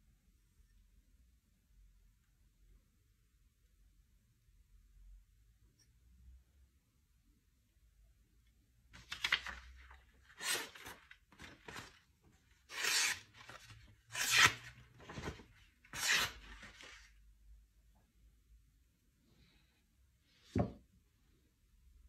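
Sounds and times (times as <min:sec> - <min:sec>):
knife slicing paper: 0:10.2 - 0:12.0, 0:12.6 - 0:17.1.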